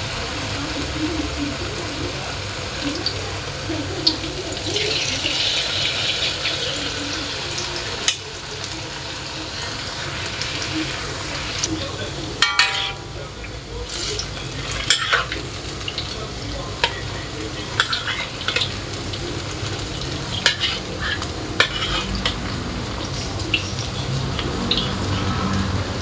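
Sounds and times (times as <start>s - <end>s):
fritters sizzling in oil: 0.0s - 26.0s
metal spatula knocking on wok: 12.4s - 13.2s.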